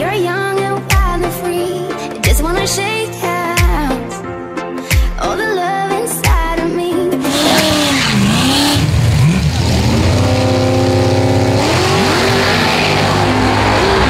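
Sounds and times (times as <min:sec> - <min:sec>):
car engine revving: 0:07.2 - 0:14.0.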